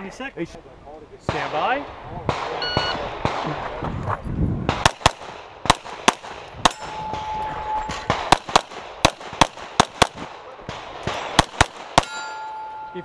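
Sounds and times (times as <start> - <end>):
rapid pistol shots: 1.3 - 3.6, 4.7 - 7.3, 7.9 - 12.2.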